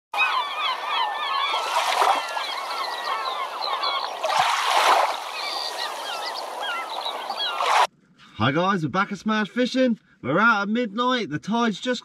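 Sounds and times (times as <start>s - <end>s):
birds chirping: 0.2s - 7.9s
water splashing: 1.3s - 7.9s.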